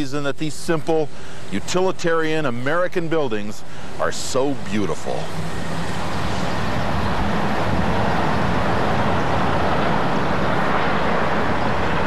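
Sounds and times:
loud machine rumble: 3.6 - 12.0
low hum: 3.6 - 12.0.

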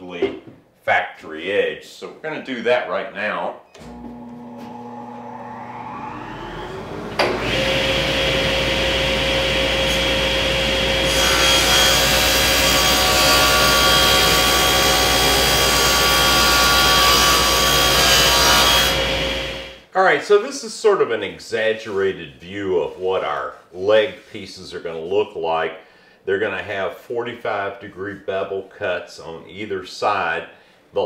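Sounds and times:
table saw motor whining: 3.8 - 19.7
saw blade cutting plywood: 4.5 - 19.5.

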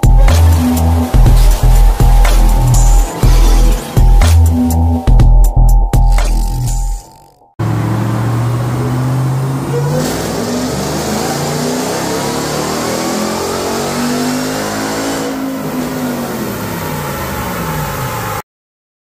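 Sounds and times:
supercharger whine: 0.0 - 18.4
engine revving on dyno: 7.6 - 18.3.

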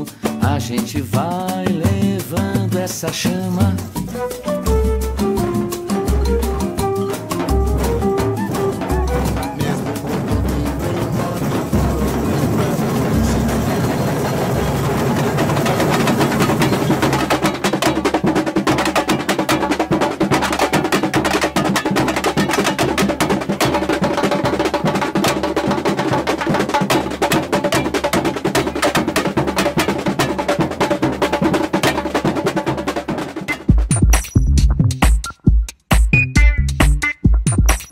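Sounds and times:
samba percussion music: 0.0 - 37.9
low bass line: 4.7 - 11.1.

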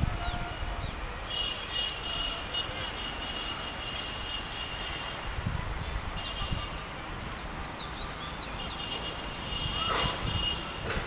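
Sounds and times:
birds chirping: 5.8 - 11.0.

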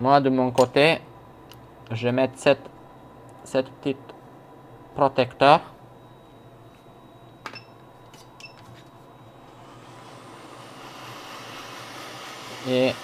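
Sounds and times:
short beeps: 5.4 - 9.5
hot air blower hissing: 9.4 - 13.0.

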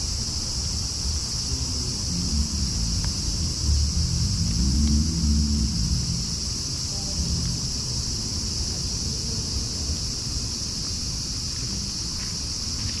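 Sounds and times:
high hiss: 0.0 - 13.0
low rumble: 1.3 - 9.2.

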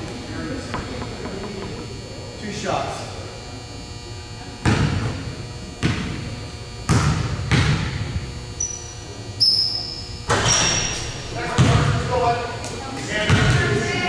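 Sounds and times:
basketball bouncing on wooden floor: 6.9 - 8.2
short high squeaks: 8.6 - 11.2.

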